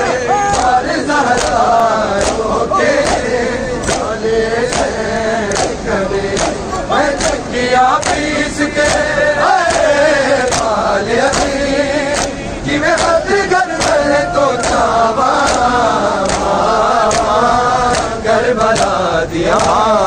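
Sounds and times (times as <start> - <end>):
men chanting: 0.0 - 20.0
hand slaps on chest: 12.2 - 12.4.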